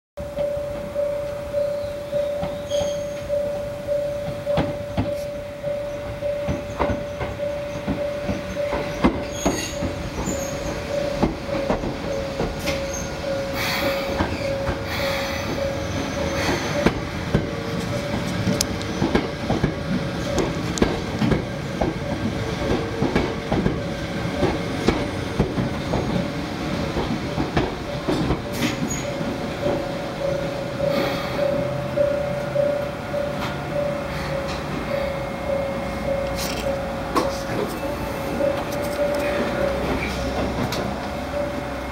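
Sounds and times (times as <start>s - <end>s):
electric train rolling: 0.2s - 41.9s
level-crossing alarm bell ringing: 0.2s - 41.9s
train wheels knocking over rail joints: 4.2s - 5.3s, 6.0s - 37.7s.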